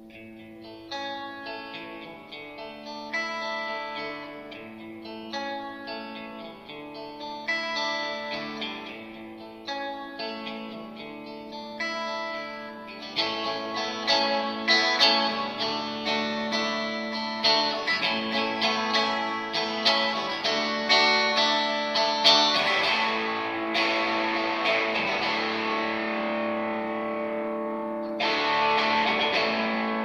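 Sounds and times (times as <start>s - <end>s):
electric guitar picked notes: 0.0s - 30.0s
held low guitar tone: 0.0s - 30.0s.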